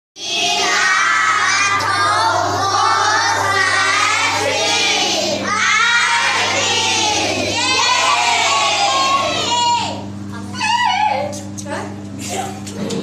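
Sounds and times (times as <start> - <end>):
children singing and chanting: 0.2 - 10.0.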